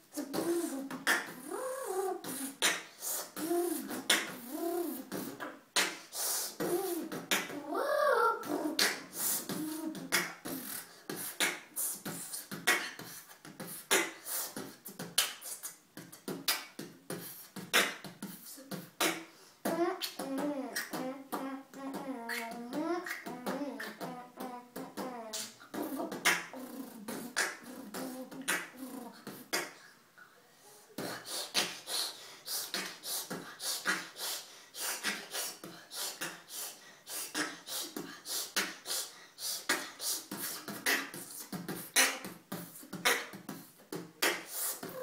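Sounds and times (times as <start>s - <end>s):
boy beatboxing: 0.0s - 45.0s
wavering vocal line: 0.1s - 5.6s, 6.2s - 11.9s, 18.6s - 29.7s.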